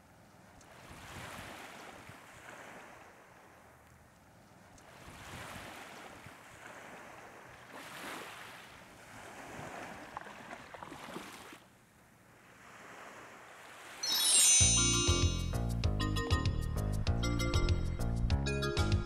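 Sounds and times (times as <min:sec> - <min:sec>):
faint ticks: 0:00.2 - 0:00.8, 0:03.8 - 0:04.9
surf washing on a beach: 0:00.7 - 0:03.9, 0:04.8 - 0:11.6, 0:12.4 - 0:14.1.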